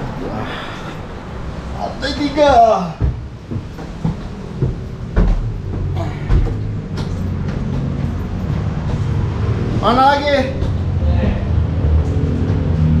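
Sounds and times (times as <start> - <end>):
lift running low hum: 0.0 - 13.0
lift knocks and thumps: 2.4 - 9.6.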